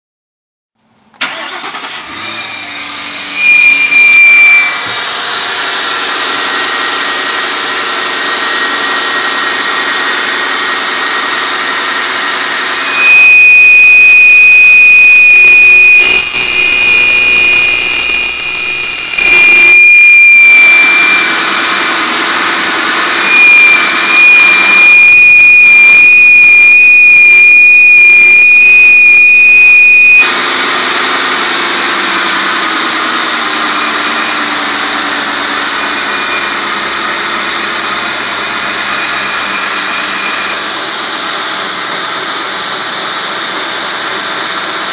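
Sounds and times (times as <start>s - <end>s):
high whine from drive belt: 1.2s - 44.9s
engine idling: 4.8s - 12.9s, 21.3s - 23.2s, 30.3s - 44.9s.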